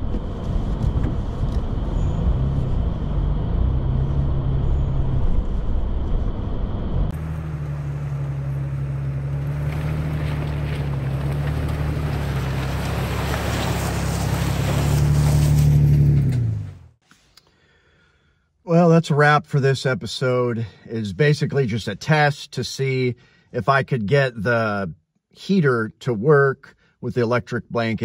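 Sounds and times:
truck engine drone: 0.0s - 17.0s.

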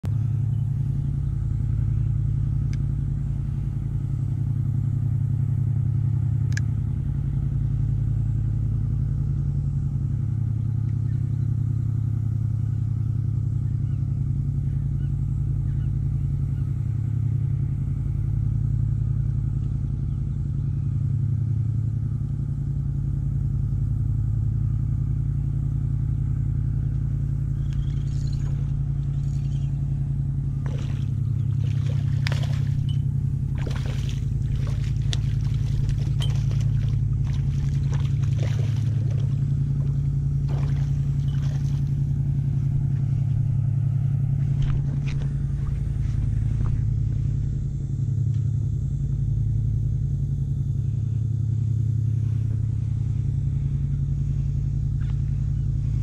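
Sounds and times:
motor humming: 26.3s - 56.0s.

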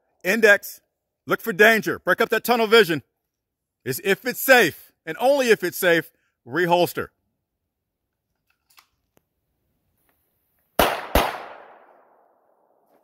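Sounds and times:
pistol shots with echo: 10.8s - 12.4s.

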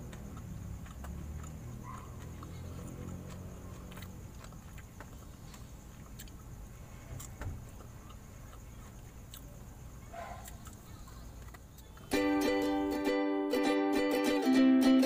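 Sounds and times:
person chewing: 0.0s - 9.6s, 10.4s - 12.1s.

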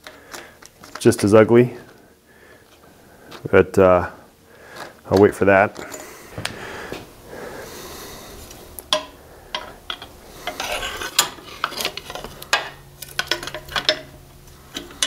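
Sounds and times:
metal pipe clicking and scraping: 8.5s - 15.0s.

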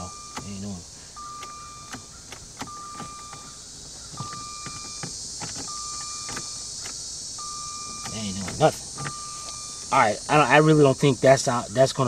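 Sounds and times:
car warning chime: 0.0s - 10.9s.

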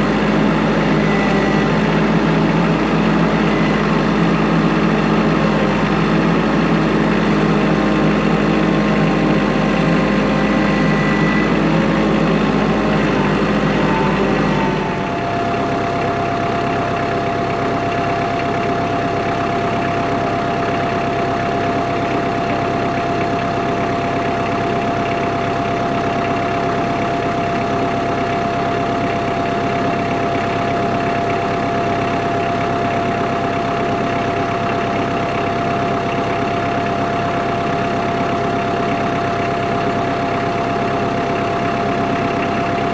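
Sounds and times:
steady high whine: 0.0s - 23.2s
tractor diesel engine running: 0.0s - 42.9s.

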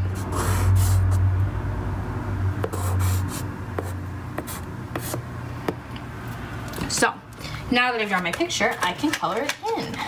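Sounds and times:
pencil scratching on paper: 0.1s - 1.2s, 2.6s - 5.2s.

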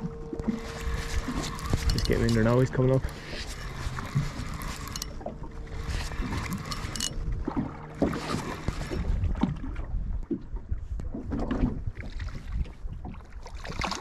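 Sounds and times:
water lapping against boat hull: 0.0s - 14.0s
wind on microphone: 0.0s - 14.0s
fishing reel winding: 0.6s - 7.2s.

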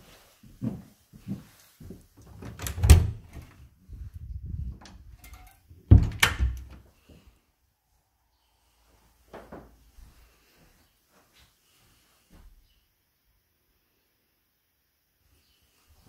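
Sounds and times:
door handling and rattling: 2.3s - 3.6s, 4.7s - 6.8s
door knob opening: 4.8s - 6.8s.

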